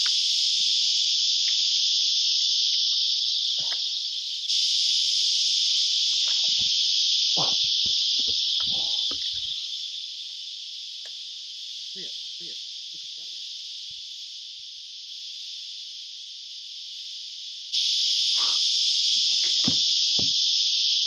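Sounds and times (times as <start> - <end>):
cicadas buzzing: 0.0 - 21.0
low knocks and thuds: 19.5 - 20.4.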